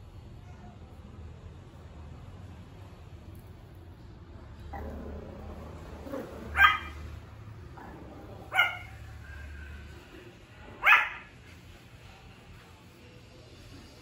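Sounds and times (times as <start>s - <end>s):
puppy barking: 6.2s - 7.1s, 8.4s - 9.0s, 10.8s - 11.4s.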